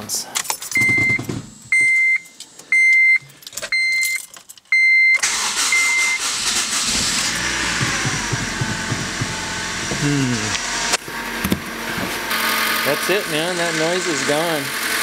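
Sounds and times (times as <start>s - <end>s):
dashboard warning chime beeping: 0.8s - 6.5s
car engine starting and running: 5.1s - 15.0s.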